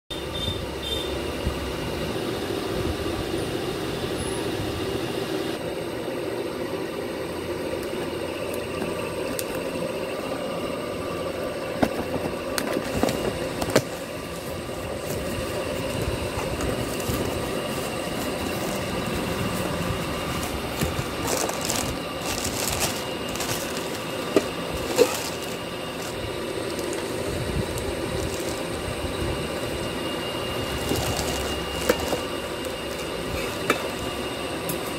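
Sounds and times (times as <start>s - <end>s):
steady rumbling background noise: 0.1s - 34.9s
crackling plastic rustle: 13.8s - 28.8s, 30.6s - 34.1s.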